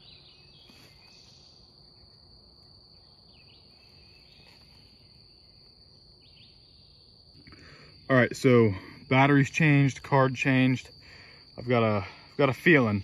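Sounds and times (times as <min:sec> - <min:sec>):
insects droning: 0:00.0 - 0:13.0.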